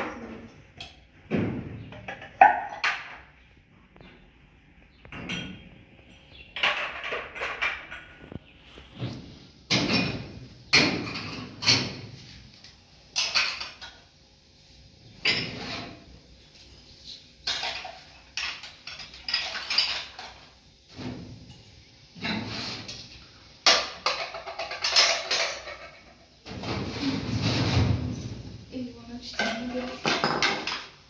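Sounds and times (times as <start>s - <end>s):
hard objects clattering: 0.0s - 4.2s, 4.9s - 12.1s, 17.4s - 20.6s, 22.2s - 28.6s, 29.2s - 31.0s.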